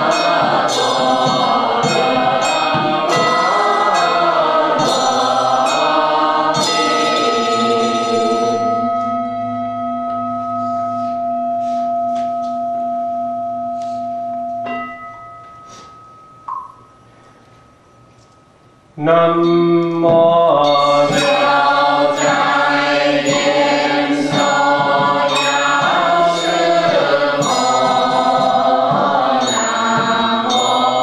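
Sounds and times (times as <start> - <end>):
group chanting in unison: 0.0 - 8.8, 20.6 - 31.0
bell ringing: 0.0 - 18.6, 20.6 - 31.0.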